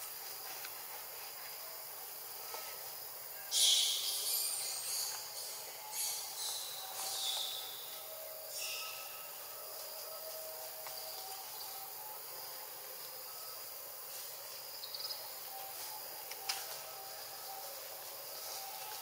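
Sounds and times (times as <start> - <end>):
even hiss: 0.0 - 9.4
insects buzzing: 0.0 - 19.0.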